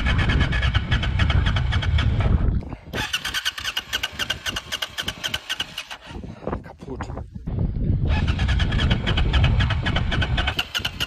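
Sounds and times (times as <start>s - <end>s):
wind rumble on microphone: 0.0s - 11.0s
motorcycle engine idling: 8.0s - 11.0s.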